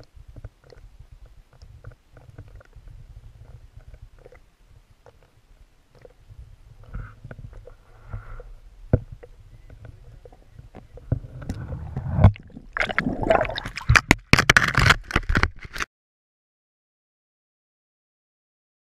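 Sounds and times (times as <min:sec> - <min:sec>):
water sloshing against camera: 0:00.0 - 0:15.9
low underwater rumble: 0:00.2 - 0:14.1
camera scraping against ice: 0:11.1 - 0:15.9.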